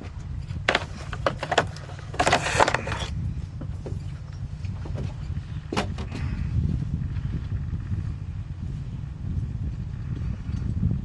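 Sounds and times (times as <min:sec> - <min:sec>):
gear knocking and rattling: 0:00.0 - 0:06.3
wind rumble on microphone: 0:00.0 - 0:11.0.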